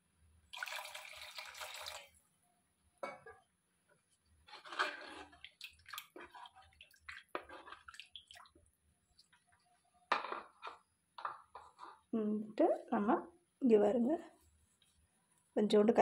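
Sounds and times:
gravy stirred with spatula: 0:04.1 - 0:09.8.

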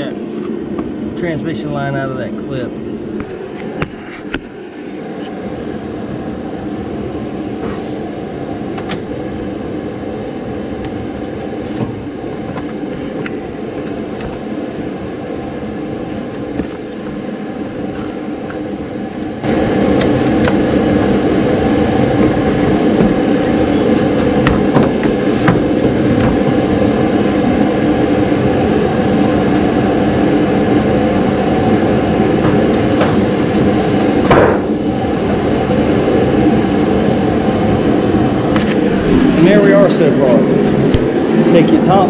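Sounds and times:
machinery droning: 0:00.0 - 0:42.0.

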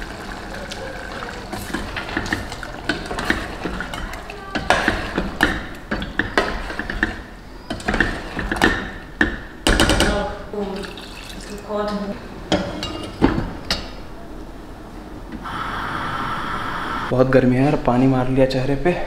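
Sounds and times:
spoon clinking and scraping pot: 0:00.2 - 0:09.5.

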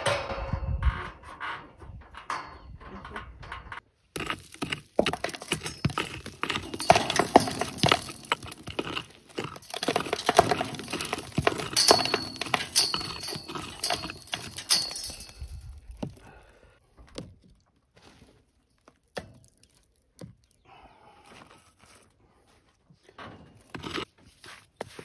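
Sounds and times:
hand tool scraping earth from stones: 0:03.8 - 0:16.3, 0:21.2 - 0:25.0.

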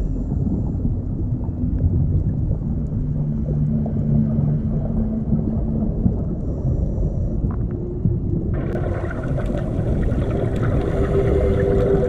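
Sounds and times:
underwater rumble: 0:00.0 - 0:12.0
faint crackling ticks: 0:04.8 - 0:08.4.

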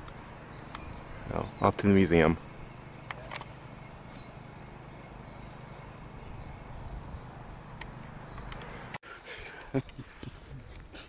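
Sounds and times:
faint bird chirps: 0:00.0 - 0:08.9
wind rumble on microphone: 0:06.0 - 0:08.6
brief clicks: 0:07.8 - 0:08.7.

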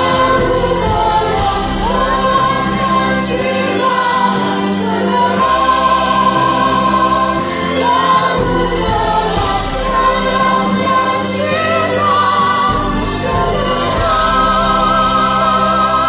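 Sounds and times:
choir singing a hymn: 0:00.0 - 0:16.0.

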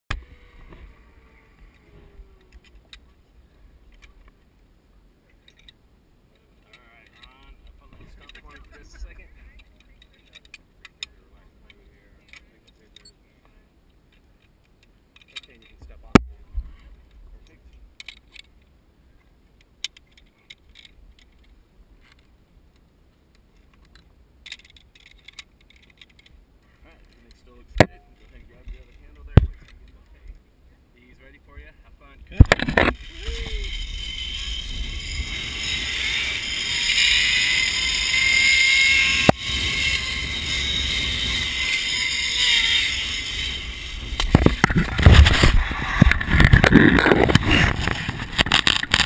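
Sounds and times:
zipline trolley whine on cable: 0:00.1 - 0:02.9, 0:32.6 - 0:49.0
carabiner clicks: 0:19.6 - 0:22.3, 0:23.3 - 0:26.4
wind rumble on microphone: 0:39.0 - 0:49.0.

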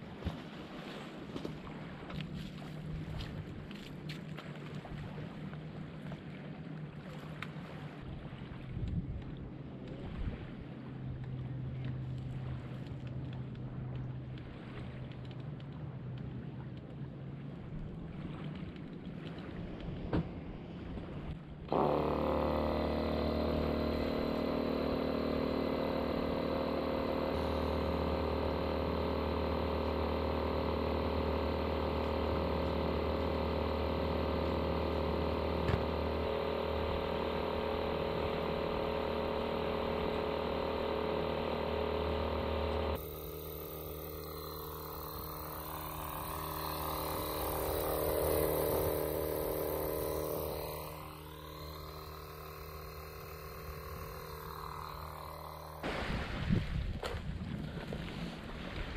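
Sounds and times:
electric inflator pump running: 0:21.7 - 0:56.6.

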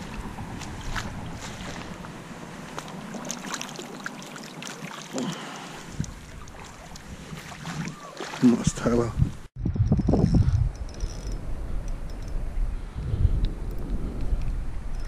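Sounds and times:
wind on microphone: 0:00.0 - 0:02.2, 0:05.8 - 0:08.0, 0:08.6 - 0:15.0
shallow water splashing: 0:00.0 - 0:08.9.

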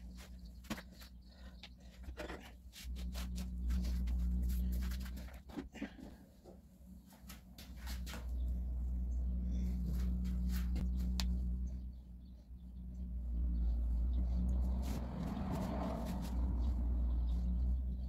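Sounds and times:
low machine hum: 0:00.0 - 0:18.0.

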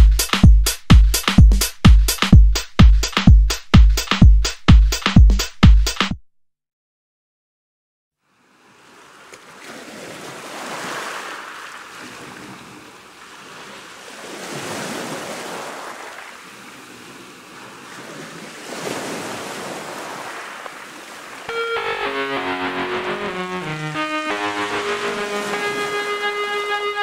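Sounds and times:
water rushing along hull: 0:08.3 - 0:27.0.

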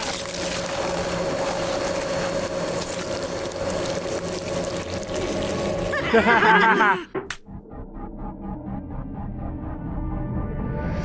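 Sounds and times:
wet squelching: 0:00.0 - 0:06.0
grinder motor hum: 0:00.0 - 0:06.9.

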